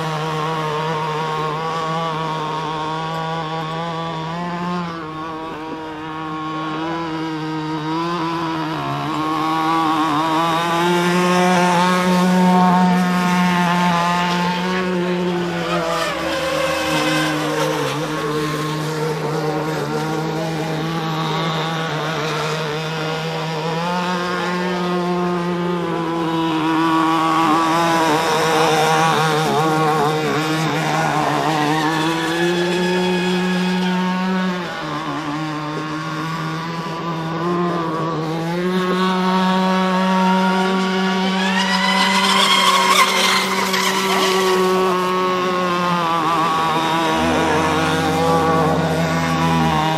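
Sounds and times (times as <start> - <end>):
electric motors whining: 40.3 - 49.9.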